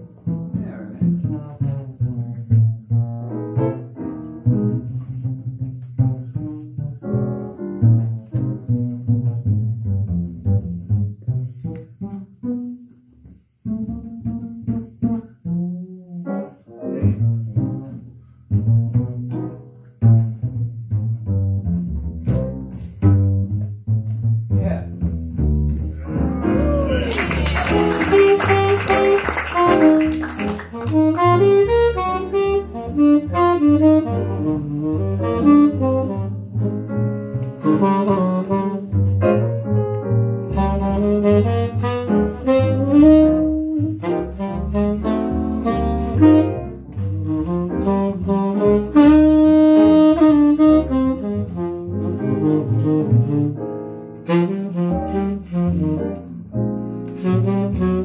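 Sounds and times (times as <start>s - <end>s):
double bass: 0.0s - 58.0s
piano: 0.0s - 58.0s
tenor saxophone melody: 26.0s - 58.0s.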